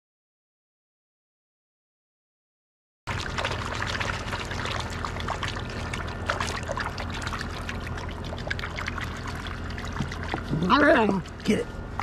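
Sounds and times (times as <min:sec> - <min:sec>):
water sloshing and splashing: 0:03.1 - 0:12.0.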